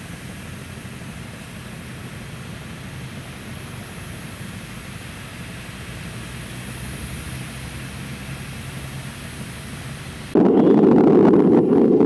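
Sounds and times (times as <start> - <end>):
jet aircraft drone: 0.0 - 12.0
low hum: 8.4 - 12.0.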